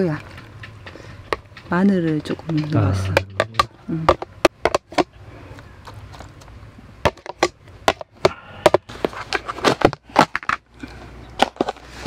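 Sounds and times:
plastic container tapped on pot: 2.5s - 4.2s.

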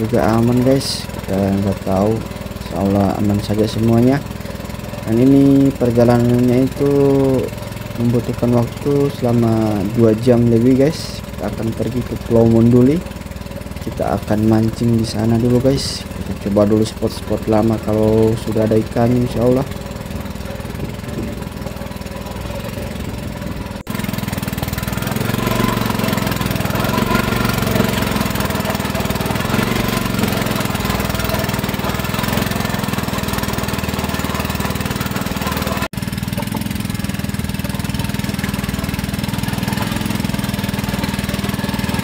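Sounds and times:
small boat engine running: 0.0s - 42.0s.

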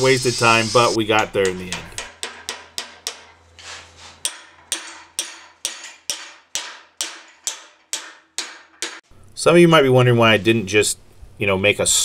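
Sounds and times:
hammer striking metal: 1.1s - 3.5s, 4.2s - 9.1s.

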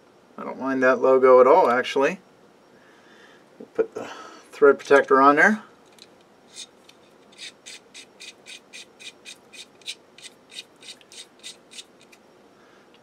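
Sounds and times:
threads scratching as screwed on: 5.9s - 12.2s.

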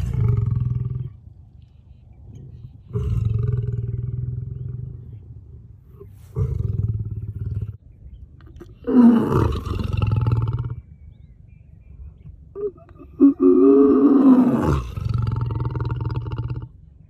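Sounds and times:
lion roaring: 0.0s - 1.2s, 2.3s - 7.8s, 8.8s - 10.8s, 12.8s - 16.7s.

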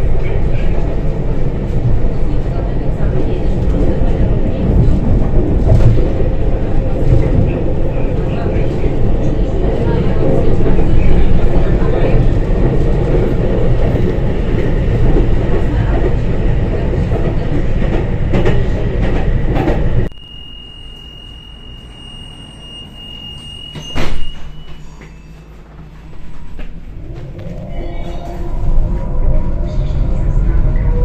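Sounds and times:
tram wheels rumbling on rails: 0.0s - 20.1s, 22.7s - 31.0s
steady high beep: 20.1s - 25.4s.

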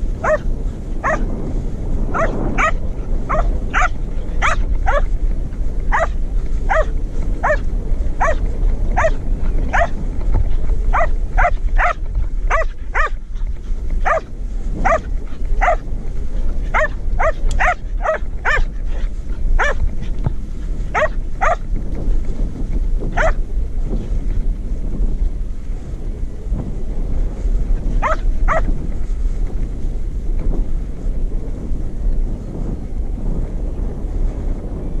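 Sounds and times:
steady low rumble: 0.0s - 35.0s
dog barking: 0.2s - 0.4s, 1.0s - 1.2s, 2.1s - 5.1s, 5.9s - 7.6s, 8.2s - 8.4s, 9.0s - 9.9s, 10.9s - 13.2s, 14.0s - 15.8s, 16.7s - 18.7s, 19.6s - 19.8s, 20.9s - 21.6s, 23.2s - 23.4s, 28.0s - 28.7s.

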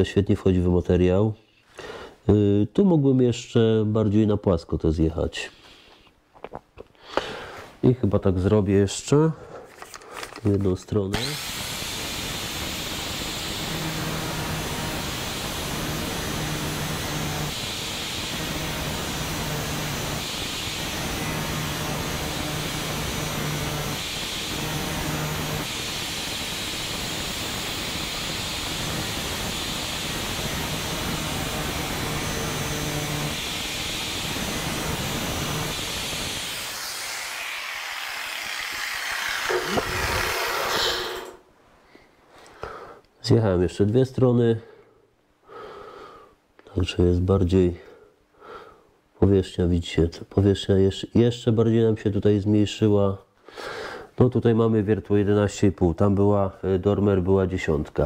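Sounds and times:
angle grinder grinding steel: 11.1s - 41.4s.

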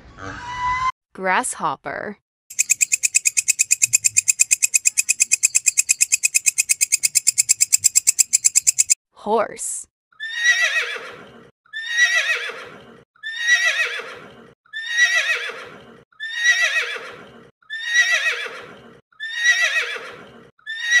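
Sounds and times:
horse whinnying: 10.2s - 21.0s.

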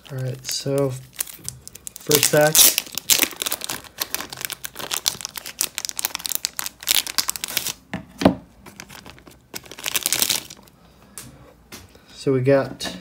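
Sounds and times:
plastic wrapper crinkling: 0.0s - 7.8s, 8.6s - 10.8s.

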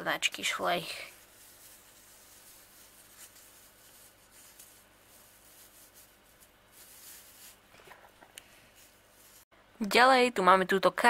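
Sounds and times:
soft rubbing on artificial turf: 0.9s - 7.7s, 8.5s - 9.5s.

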